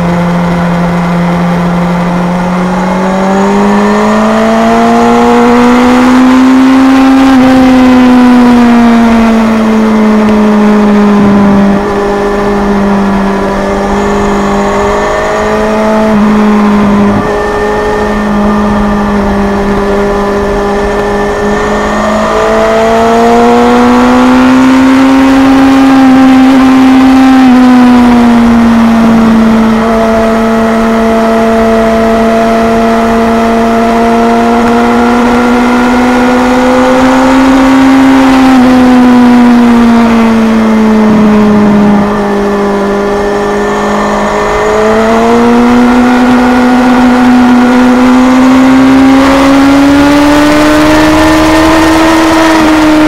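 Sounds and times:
motorcycle engine revving high: 0.0 - 53.0
wind rush: 11.0 - 23.9.

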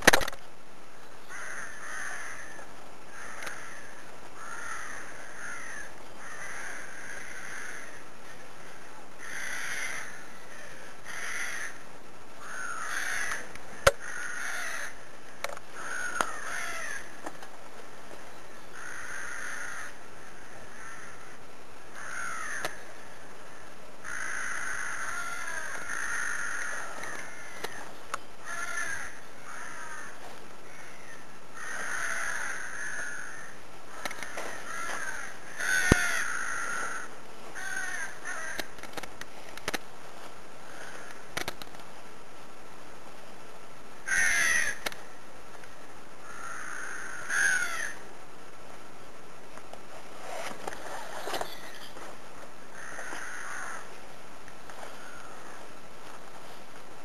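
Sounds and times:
crows cawing: 1.2 - 17.3, 18.6 - 38.8, 40.6 - 41.3, 44.0 - 45.2, 46.2 - 48.1, 52.6 - 54.0, 54.7 - 55.8.

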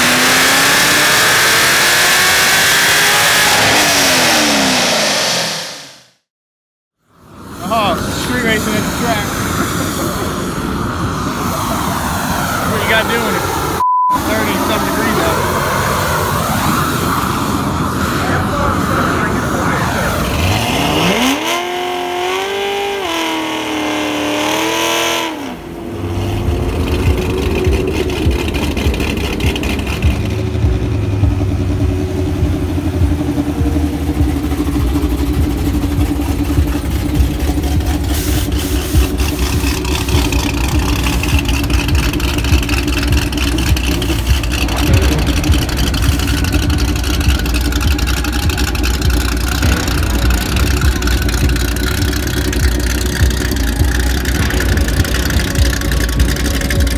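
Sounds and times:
tires burning out: 0.0 - 6.2, 7.0 - 56.9
car engine revving: 0.0 - 6.3, 7.4 - 56.9
engine choppy idle: 17.4 - 20.6, 26.3 - 56.9.

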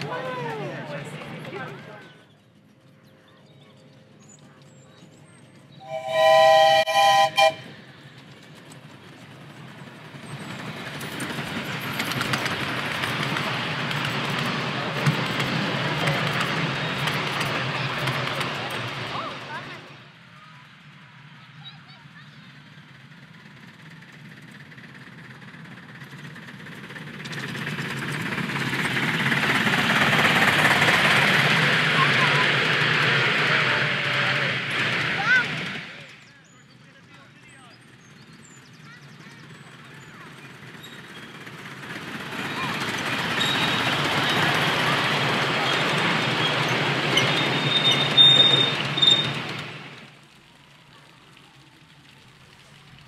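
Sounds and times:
running train rushing: 0.0 - 53.0
steam whistle blasts: 5.8 - 7.8.

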